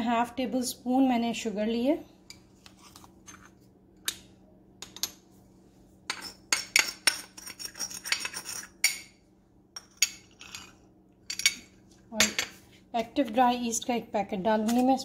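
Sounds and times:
faint steady hum: 0.0s - 15.0s
utensils clinking against glass bowl: 6.1s - 9.1s.

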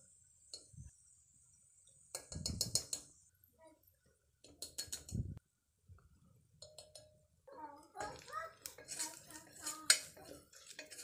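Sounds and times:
plastic spoon clattering on metal pot: 2.2s - 3.1s, 4.4s - 5.3s.

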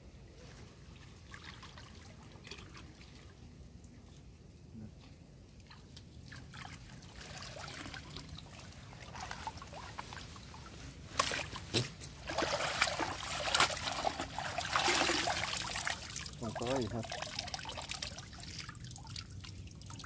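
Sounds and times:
water trickling and pouring: 5.6s - 10.8s, 12.2s - 20.0s
water splashing: 5.6s - 20.0s.

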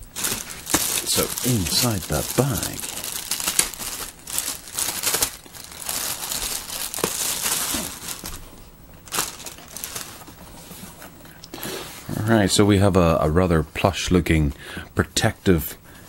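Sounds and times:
carry case rustling and crinkling: 0.0s - 11.2s.

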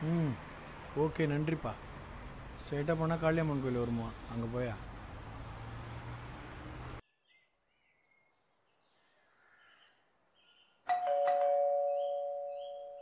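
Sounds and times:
two-tone doorbell chime: 10.9s - 13.0s.

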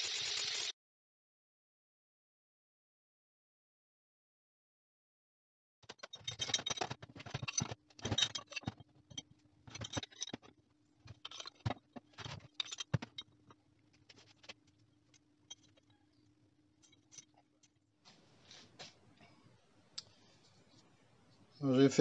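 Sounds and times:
steel pieces clinking and scraping: 5.9s - 17.8s.

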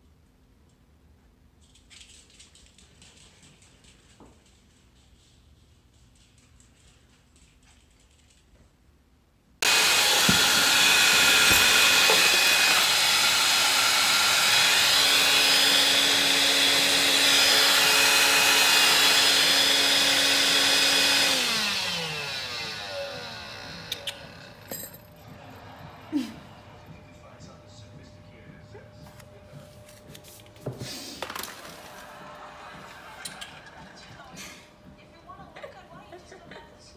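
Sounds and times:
electric motor whining: 9.6s - 24.8s.

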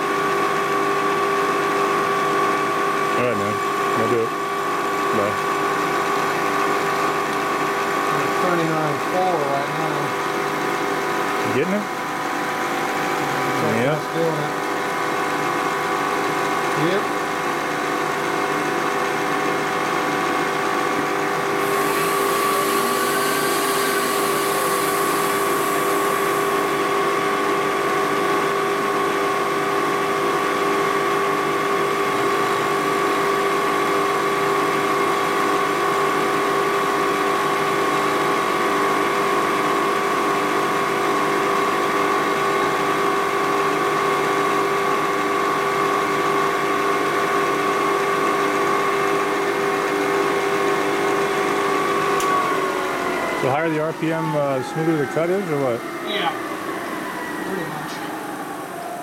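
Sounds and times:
milling machine hum and whine: 0.0s - 59.0s.

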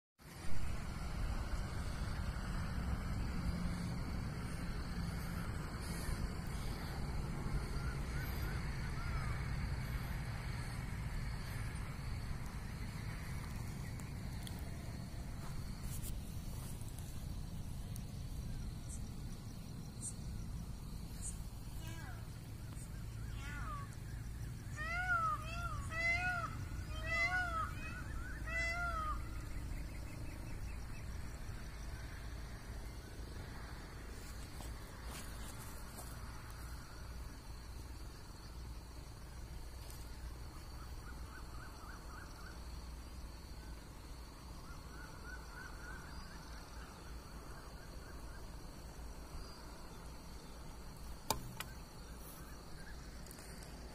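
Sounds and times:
steady low rumble: 0.3s - 24.8s
animal calls: 24.7s - 29.6s.

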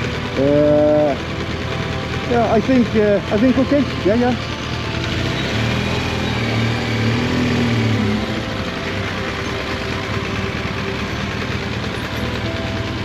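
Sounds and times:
motorcycle engine at low revs: 0.0s - 13.0s.

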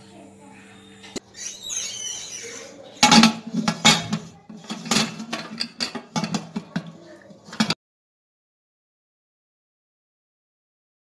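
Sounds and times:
metal lid scraping: 2.4s - 7.8s
metal lid clanks and clicks: 3.0s - 6.9s.

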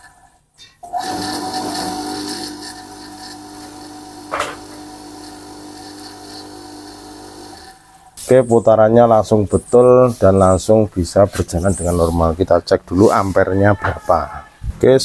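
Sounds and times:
water pump motor humming: 0.8s - 7.9s.

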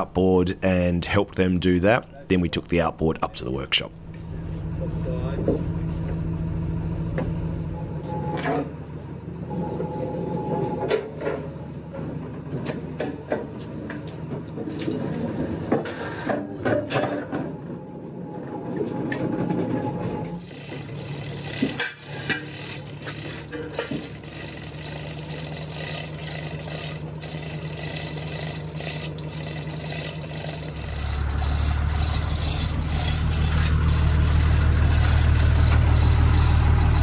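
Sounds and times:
crane engine running: 3.5s - 37.0s
knocks scrapes and rattles: 11.1s - 17.6s, 18.4s - 37.0s.

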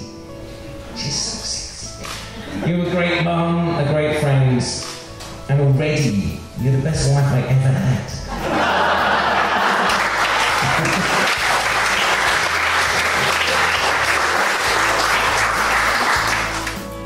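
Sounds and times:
crowd applauding: 8.7s - 17.0s.

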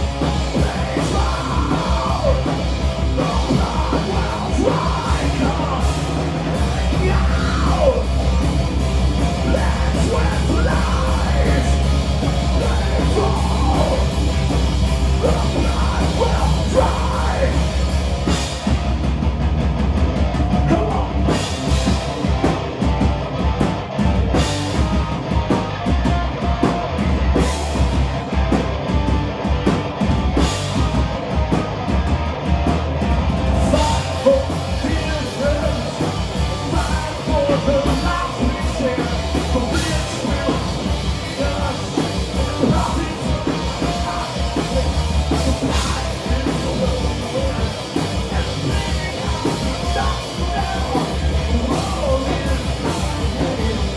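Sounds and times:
distorted electric guitars: 0.0s - 53.9s
drum kit: 0.0s - 53.9s
yelled vocals: 0.0s - 53.9s.

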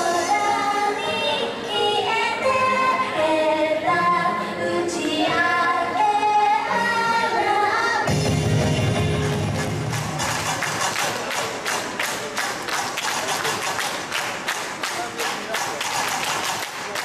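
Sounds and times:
woman singing over light backing: 0.0s - 8.1s.

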